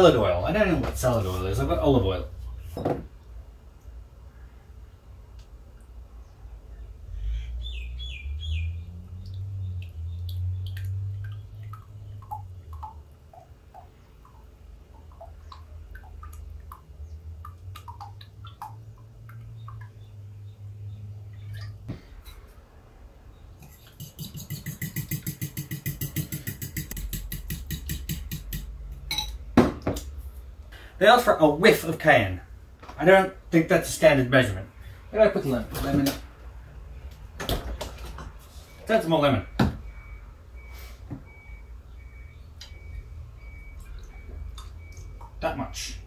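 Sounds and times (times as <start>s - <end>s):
whisking in a jug: 23.6s - 28.6s.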